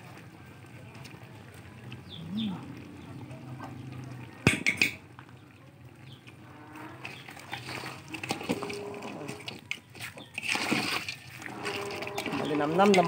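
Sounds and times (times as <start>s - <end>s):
metal spoon scraping pot: 6.4s - 13.0s.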